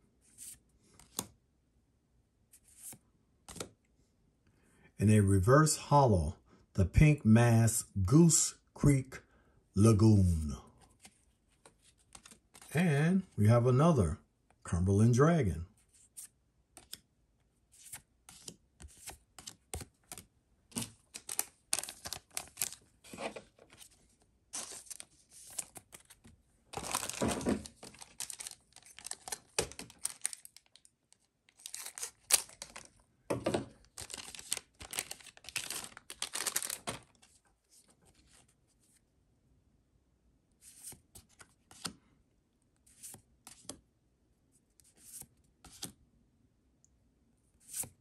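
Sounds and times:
cards being handled: 0.3 - 1.4, 2.6 - 3.8, 10.4 - 12.8, 15.8 - 17.1, 17.7 - 39.0, 40.6 - 42.0, 42.9 - 43.8, 44.8 - 46.0, 47.6 - 48.0
foil wrapper crinkling and tearing: 21.2 - 22.8, 26.8 - 30.9, 31.5 - 32.9, 33.9 - 37.1.

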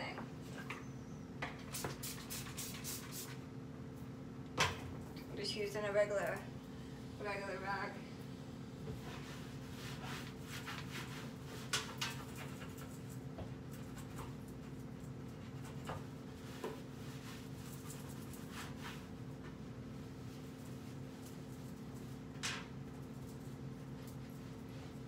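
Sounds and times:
cloth rag wiping metal hood: 9.0 - 11.7.

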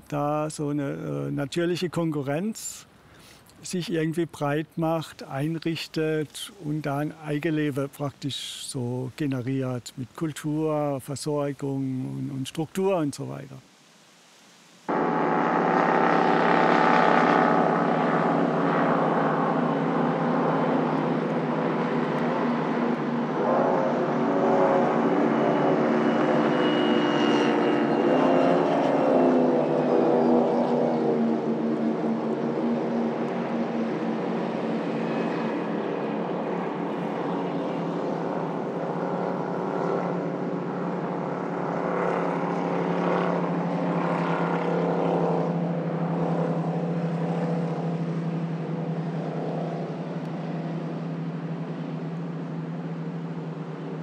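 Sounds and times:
speedboat engines droning: 14.9 - 54.0.

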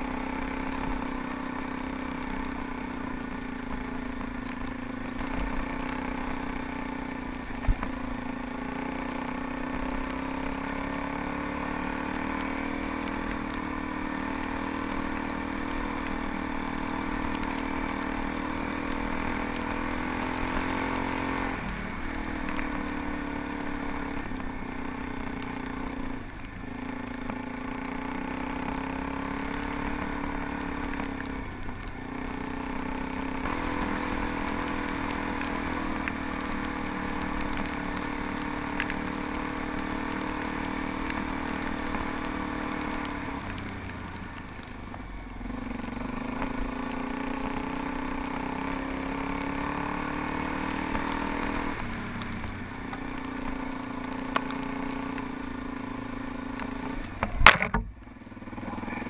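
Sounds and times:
motorcycle engine running: 0.0 - 59.0
faint ticks: 13.0 - 21.2, 33.4 - 44.8, 49.6 - 55.4, 56.2 - 57.9.

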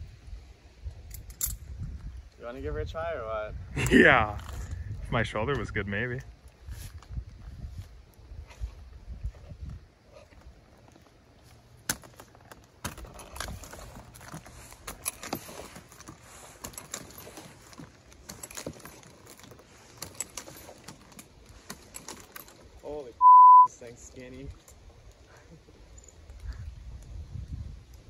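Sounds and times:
harness hardware jangling: 1.0 - 2.0, 10.8 - 23.1, 24.2 - 27.2.

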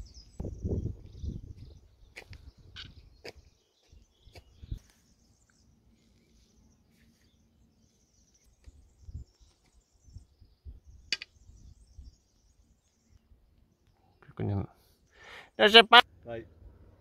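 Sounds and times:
wind gusts on microphone: 0.0 - 4.9
small birds chirping: 0.0 - 17.0.

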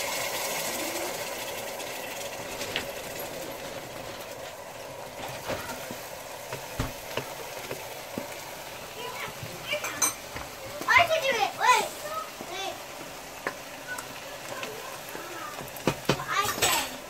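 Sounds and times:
syrup bubbling and sizzling: 0.0 - 17.0
spatula knocking: 6.5 - 8.3, 15.6 - 16.3.

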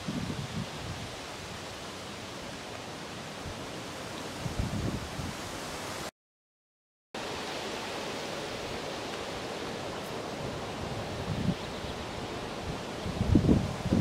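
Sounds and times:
wind on microphone: 0.0 - 1.6, 4.3 - 6.0, 10.2 - 14.0.

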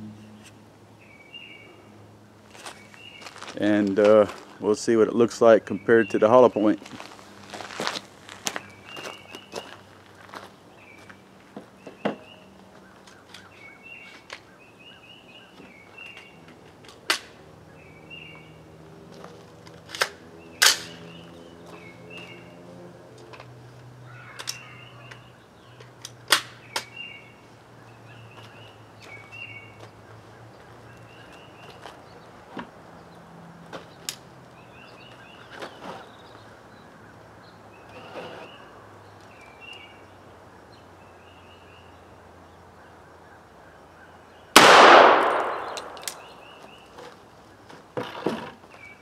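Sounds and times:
rifle shot: 44.6 - 46.4.

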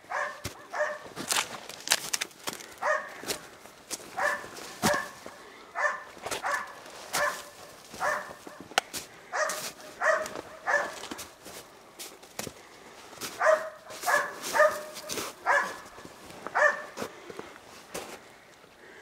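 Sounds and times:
dog barking: 0.0 - 1.1, 2.8 - 3.3, 4.1 - 8.7, 9.3 - 11.2, 13.4 - 17.0.

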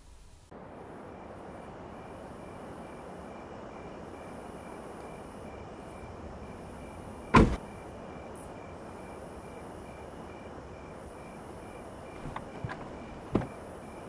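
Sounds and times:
background hiss: 0.0 - 14.0
car door slamming: 7.3 - 7.6, 12.2 - 13.6.

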